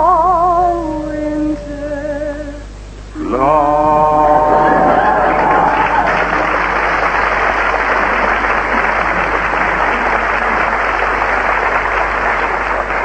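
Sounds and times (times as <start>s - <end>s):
audience applauding: 3.7s - 13.0s.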